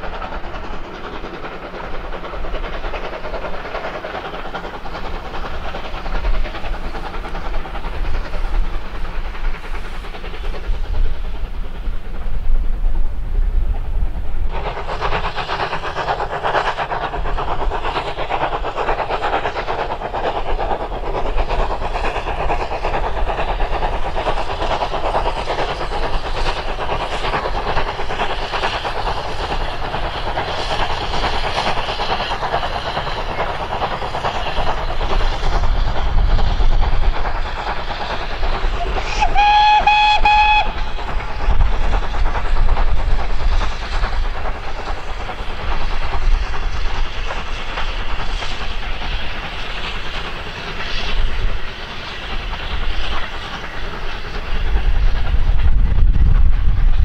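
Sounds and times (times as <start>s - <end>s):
steam locomotive hissing: 0.0s - 57.0s
train wheels rumbling on rails: 0.0s - 57.0s.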